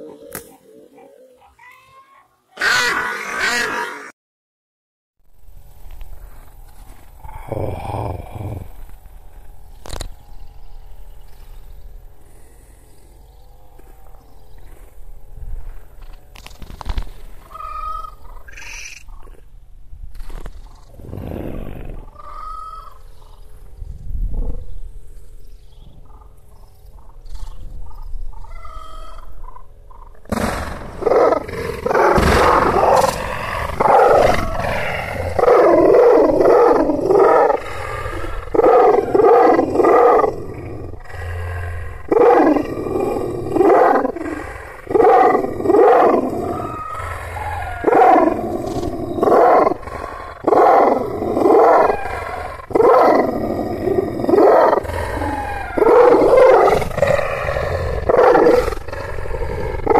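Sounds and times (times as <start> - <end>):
dog barking deeply: 2.6 - 3.9, 31.0 - 59.9.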